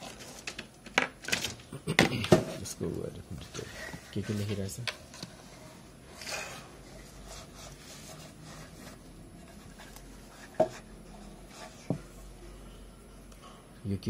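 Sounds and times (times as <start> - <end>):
faint rubbing: 5.3 - 12.6.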